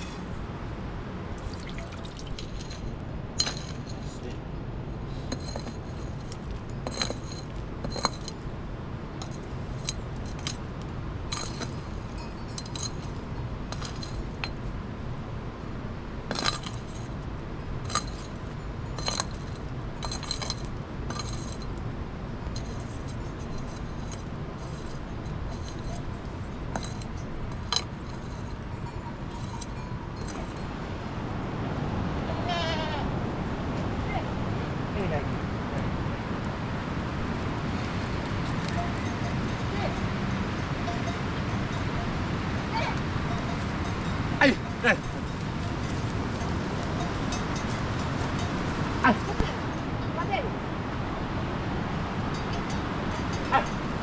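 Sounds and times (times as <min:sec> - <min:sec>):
metal ladle clinking: 0:22.6 - 0:30.7
goat bleating: 0:32.3 - 0:33.1.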